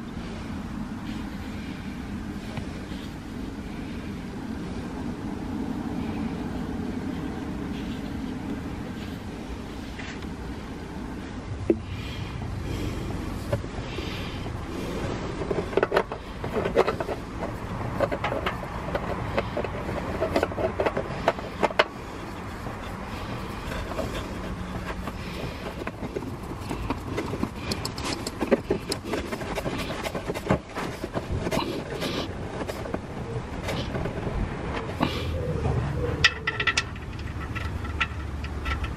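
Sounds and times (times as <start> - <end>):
low background rumble: 0.0 - 38.9
oil filter clicks and scrapes: 14.8 - 33.0, 36.2 - 38.9.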